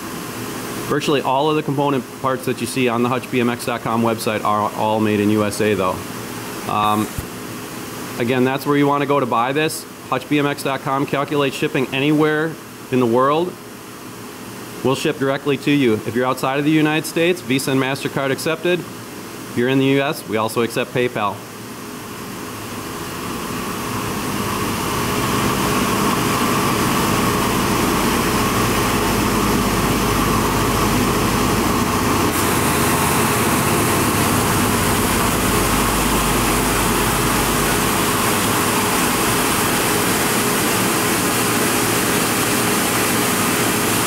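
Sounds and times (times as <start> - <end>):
constant machine hum: 0.0 - 44.0
coolant spray hiss: 23.1 - 44.0
milling machine cutting steel: 24.4 - 44.0.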